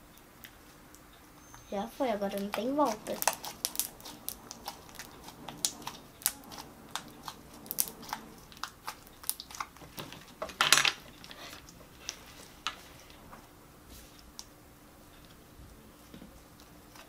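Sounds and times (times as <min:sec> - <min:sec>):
slime squelch: 0:01.7 - 0:10.4.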